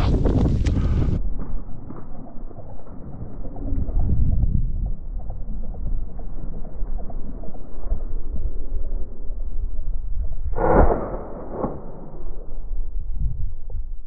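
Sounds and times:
wind rumble on microphone: 0.0s - 14.0s
shotgun shot: 10.6s - 12.4s.

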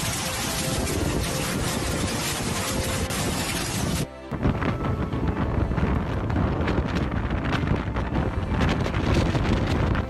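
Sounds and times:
strong wind buffeting microphone: 0.0s - 10.0s.

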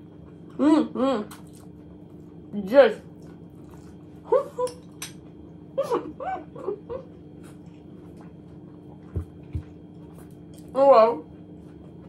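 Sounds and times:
woman humming moans of delight: 0.6s - 1.3s.

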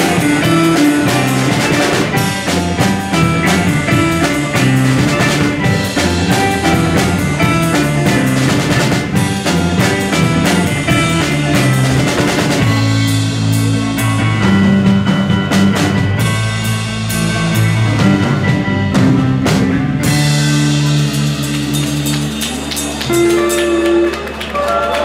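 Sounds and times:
drum hits: 0.0s - 16.6s
bass guitar notes: 0.0s - 25.0s
electric guitar: 0.0s - 25.0s
rock band playing: 0.0s - 25.0s.

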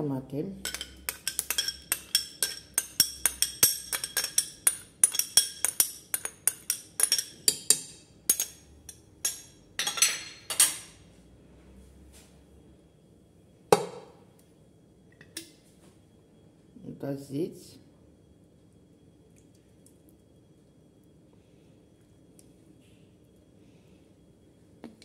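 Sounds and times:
metal spoon clinking on glass bowl: 0.6s - 10.9s.

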